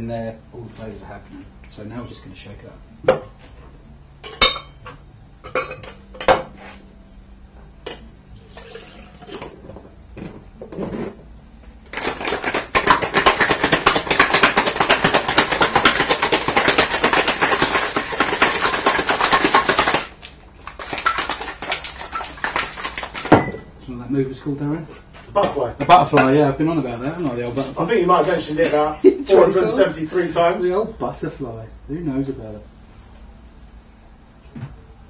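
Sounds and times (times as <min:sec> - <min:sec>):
cocktail shaker rattling: 0:11.9 - 0:23.4.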